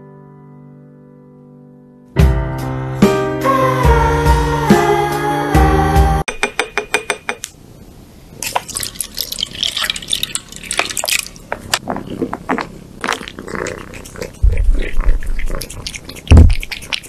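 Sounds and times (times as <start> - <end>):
cat licking and eating: 8.4 - 17.0.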